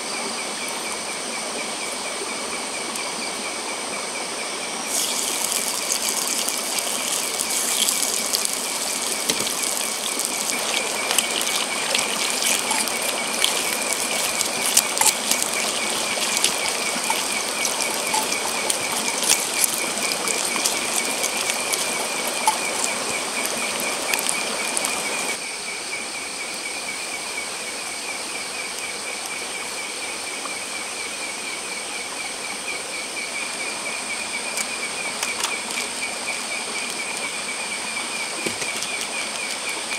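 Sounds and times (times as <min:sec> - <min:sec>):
insects chirring: 0:00.0 - 0:39.9
bacon sizzling in pan: 0:04.9 - 0:25.4, 0:34.6 - 0:39.9.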